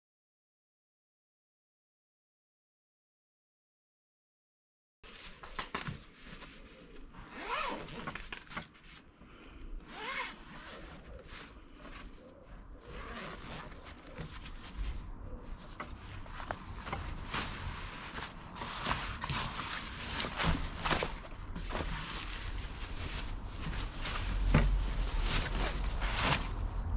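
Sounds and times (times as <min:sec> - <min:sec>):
zip on fabric bag pulled open: 0:07.1 - 0:08.5, 0:09.8 - 0:12.0, 0:12.8 - 0:14.7.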